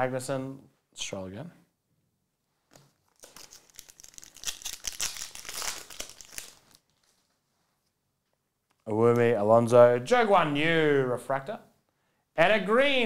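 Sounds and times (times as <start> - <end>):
foil wrapper tearing and crinkling: 3.0 - 7.3.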